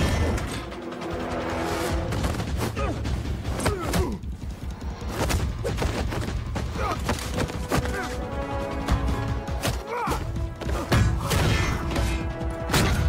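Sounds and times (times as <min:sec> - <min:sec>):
dramatic score music: 0:00.0 - 0:13.0.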